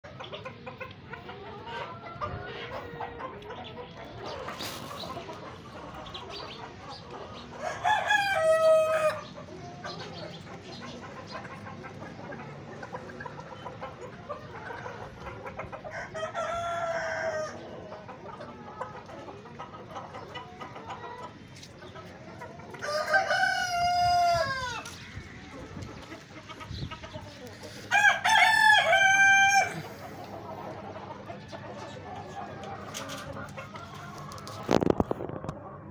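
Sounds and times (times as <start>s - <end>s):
chickens clucking: 0.0s - 35.9s
roosters crowing: 7.5s - 9.4s, 15.9s - 17.7s, 22.7s - 25.5s, 27.7s - 34.9s.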